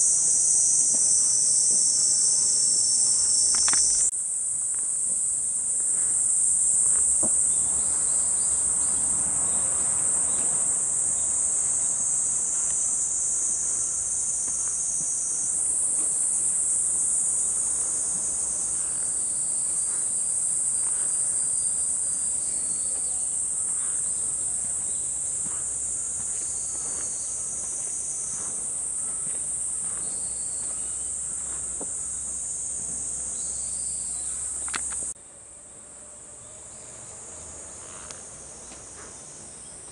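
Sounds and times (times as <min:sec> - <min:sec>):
cicadas droning: 0:00.0 - 0:39.9
footsteps on a path: 0:06.8 - 0:08.1, 0:11.6 - 0:33.5, 0:37.8 - 0:39.8.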